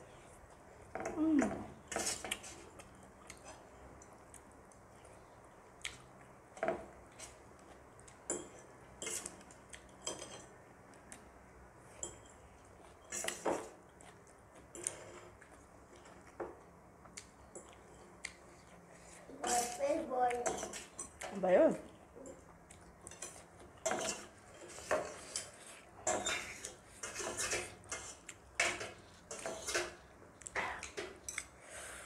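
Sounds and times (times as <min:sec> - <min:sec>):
spoon and fork scraping metal tray: 0:23.1 - 0:30.0.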